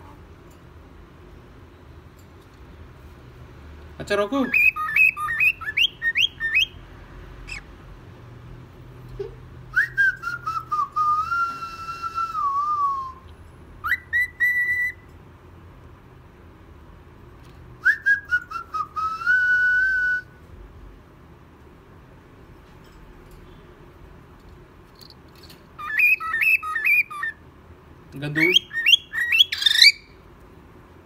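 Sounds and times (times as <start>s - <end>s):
cockatiel whistling: 4.5s - 6.8s, 13.8s - 15.0s, 17.8s - 20.3s, 25.8s - 27.4s, 28.4s - 30.2s.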